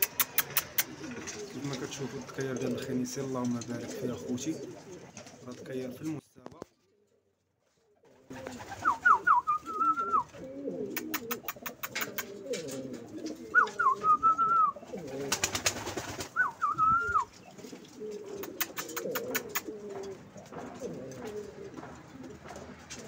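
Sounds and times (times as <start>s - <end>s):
rapid sharp clicks: 0.0s - 1.4s, 10.9s - 12.4s, 18.4s - 19.7s
pigeons cooing: 0.0s - 6.2s, 8.0s - 23.0s
high warbling bird call: 16.3s - 17.4s.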